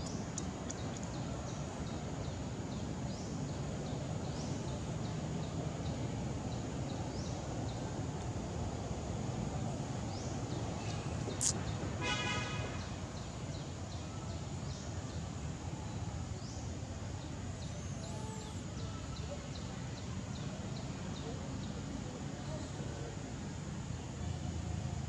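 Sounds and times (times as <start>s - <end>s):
sharp click: 11.3s - 11.6s.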